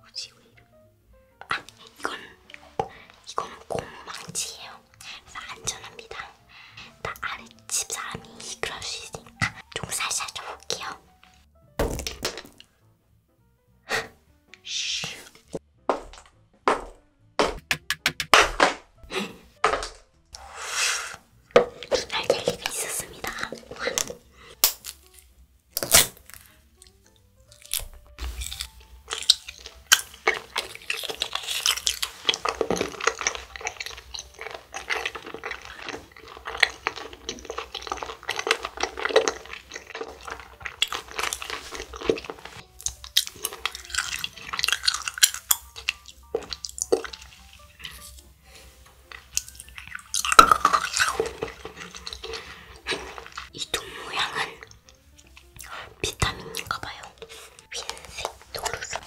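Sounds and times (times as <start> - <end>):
candy chewing crunches: 1.4 - 11.0, 21.1 - 59.0
sticky mouth clicks: 26.3 - 48.3.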